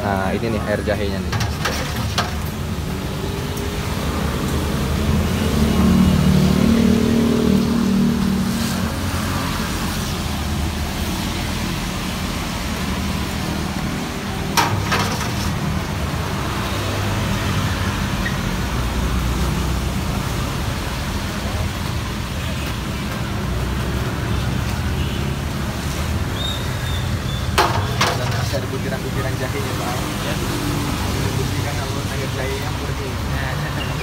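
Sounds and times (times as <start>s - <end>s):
road traffic passing: 0.0s - 34.0s
vehicle engine: 0.8s - 26.4s.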